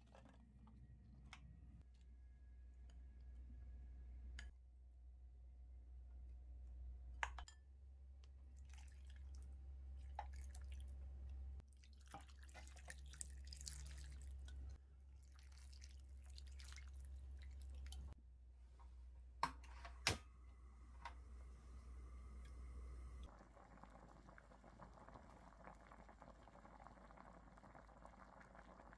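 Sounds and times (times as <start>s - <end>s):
water pouring into a frying pan: 11.7s - 14.4s, 15.2s - 18.2s, 23.3s - 28.9s.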